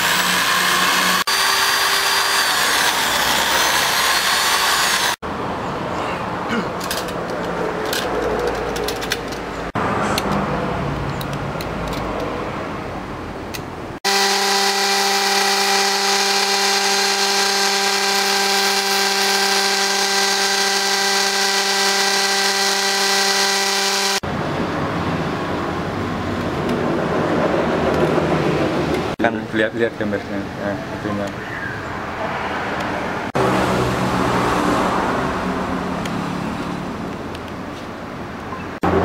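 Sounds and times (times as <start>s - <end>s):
small electric motor running: 0.0s - 5.2s, 14.1s - 24.3s.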